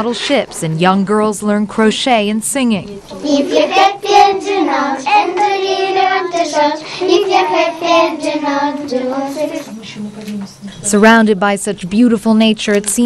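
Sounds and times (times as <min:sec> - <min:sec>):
young girls singing: 0:03.1 - 0:10.2.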